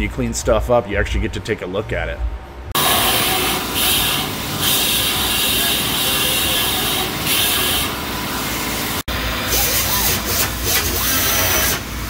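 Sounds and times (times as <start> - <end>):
power grinder cutting metal: 2.8 - 8.0.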